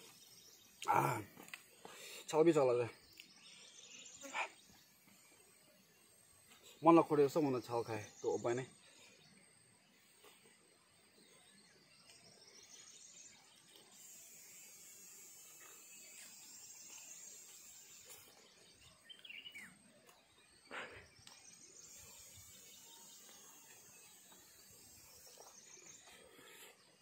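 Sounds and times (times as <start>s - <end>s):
bird chirp: 0.0s - 27.0s
high-pitched insect drone: 12.6s - 19.8s, 20.7s - 27.0s.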